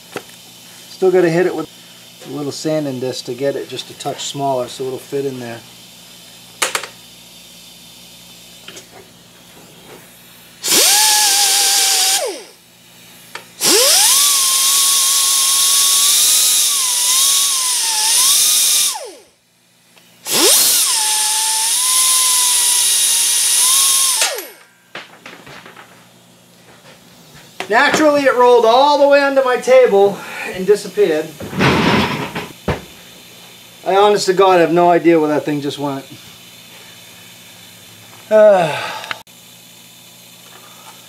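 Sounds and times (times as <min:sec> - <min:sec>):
die grinder whining: 0:10.6 - 0:12.6, 0:13.3 - 0:19.3, 0:20.2 - 0:24.7.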